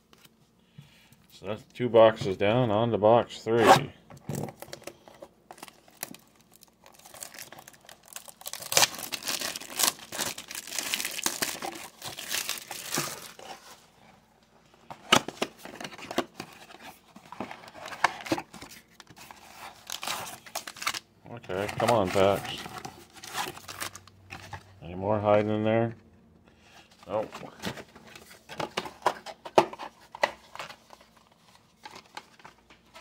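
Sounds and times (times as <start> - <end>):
cardboard packaging crinkling and tearing: 5.5 - 13.8, 15.3 - 24.6.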